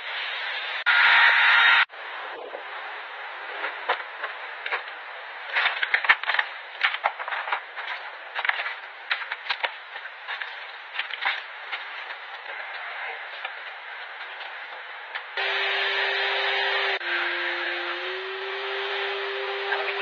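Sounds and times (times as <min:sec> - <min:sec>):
plastic wrappers rustling: 0:05.5 - 0:12.7.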